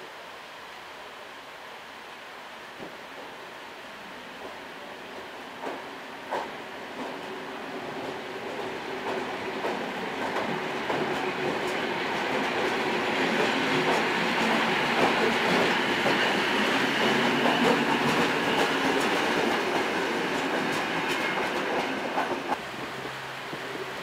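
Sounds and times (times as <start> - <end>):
train wheels clattering over rail joints: 5.2 - 23.7.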